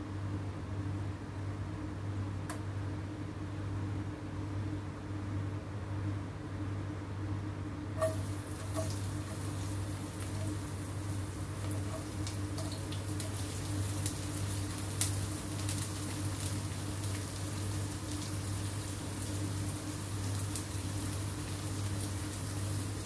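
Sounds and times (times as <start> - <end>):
spatula scraping a plate: 8.0 - 9.0
hot oil crackling in a wok: 8.0 - 23.0.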